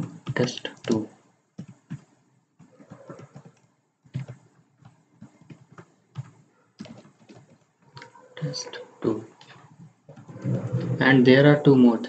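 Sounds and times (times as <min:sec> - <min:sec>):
computer keyboard typing: 0:00.0 - 0:02.1, 0:02.7 - 0:08.6, 0:09.4 - 0:11.0.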